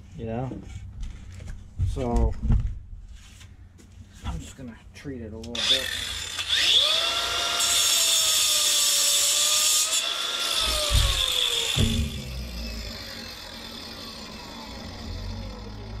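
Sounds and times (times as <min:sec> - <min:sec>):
angle grinder grinding stone: 0:05.6 - 0:16.0
low thumps: 0:10.9 - 0:12.9.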